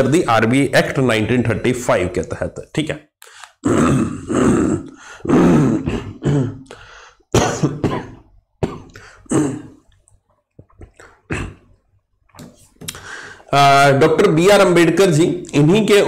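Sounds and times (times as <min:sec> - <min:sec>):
man clearing throat: 0:03.6 - 0:09.8, 0:11.0 - 0:11.7
man coughing: 0:03.7 - 0:09.8.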